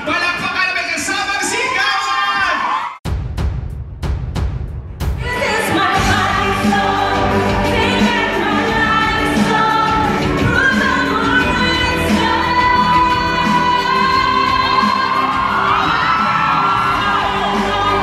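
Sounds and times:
woman singing into microphone: 0:05.2 - 0:16.2.

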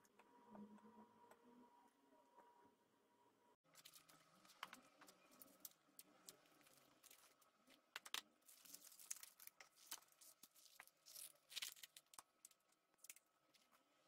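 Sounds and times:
plastic packaging crinkling: 0:03.7 - 0:13.8.

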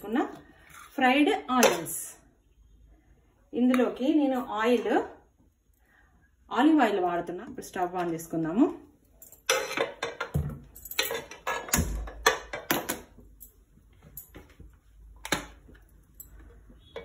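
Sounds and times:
hard objects clicking and knocking: 0:09.4 - 0:13.2.

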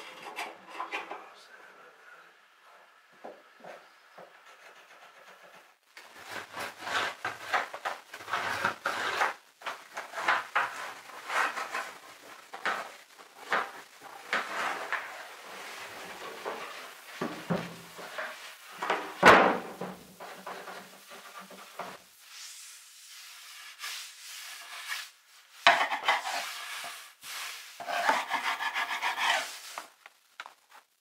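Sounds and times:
wooden boards scraping: 0:06.1 - 0:22.0, 0:27.8 - 0:29.8.

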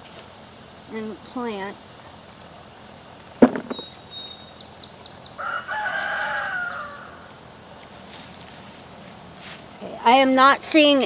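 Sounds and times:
crickets chirping: 0:00.0 - 0:11.0
sharp knock: 0:03.4 - 0:03.9
rooster crowing: 0:05.4 - 0:07.4.

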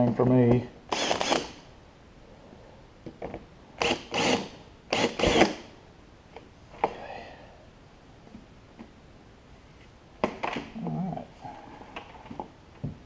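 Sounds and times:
cordless drill bursts: 0:00.9 - 0:01.6, 0:03.8 - 0:05.7.

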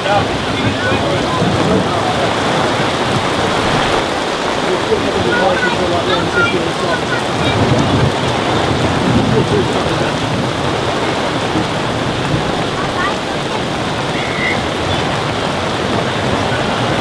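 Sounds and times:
heavy rain hiss: 0:00.0 - 0:17.0.

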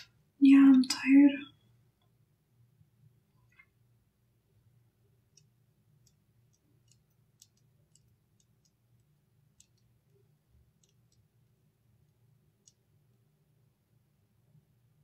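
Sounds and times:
low steady hum: 0:00.0 - 0:15.0
faint small clicks: 0:05.3 - 0:11.3, 0:12.0 - 0:12.9.

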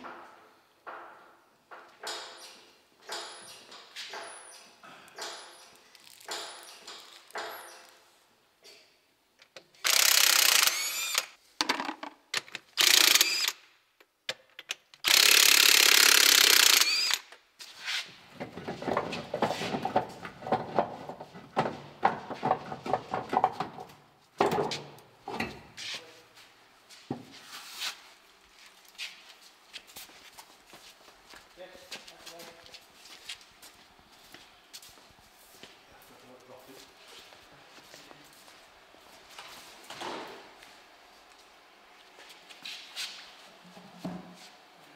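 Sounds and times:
impact wrench bursts: 0:09.8 - 0:11.4, 0:12.7 - 0:13.7, 0:15.0 - 0:17.3.

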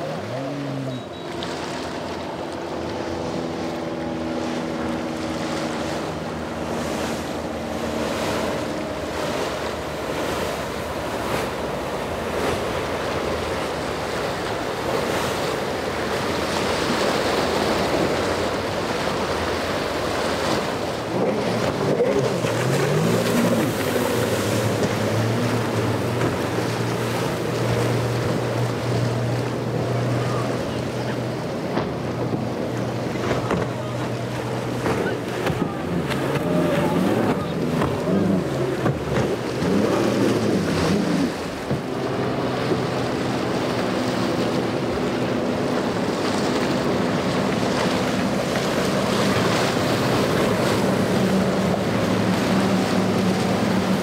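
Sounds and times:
boat engine drone: 0:00.0 - 0:54.0
outboard motor: 0:00.0 - 0:54.0
water splashing: 0:00.0 - 0:54.0.

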